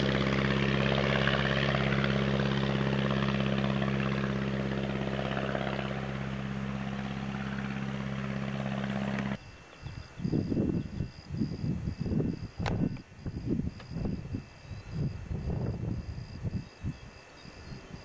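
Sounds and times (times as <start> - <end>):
light airplane engine drone: 0.0 - 9.8.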